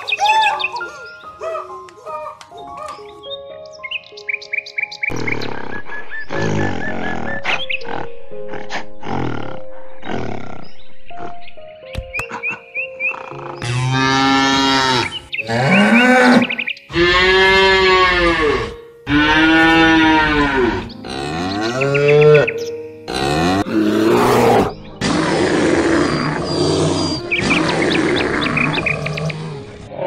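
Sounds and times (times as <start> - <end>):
cows mooing: 13.1 - 30.0.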